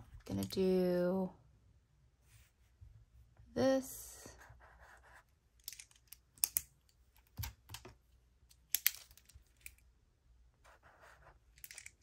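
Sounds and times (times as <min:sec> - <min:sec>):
retractable pen clicks: 0:05.6 - 0:06.7.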